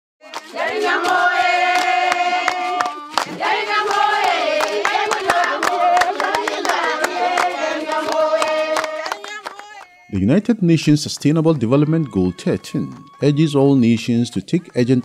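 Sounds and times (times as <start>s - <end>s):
choir singing long notes: 0.2s - 9.3s, 11.5s - 14.2s.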